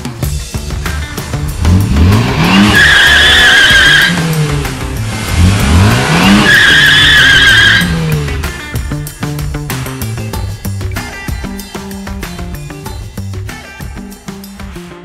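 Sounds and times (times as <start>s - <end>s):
car engine revving: 0.0s - 12.9s
background music: 0.0s - 15.0s
tyres squealing: 2.4s - 4.4s, 5.2s - 8.6s.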